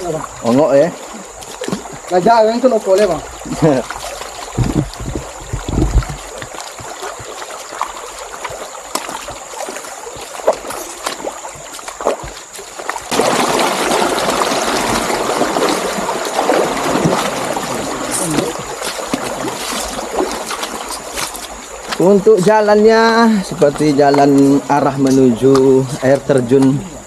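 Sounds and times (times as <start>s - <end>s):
stream water rushing: 0.0s - 27.0s
low thumps: 4.5s - 6.5s.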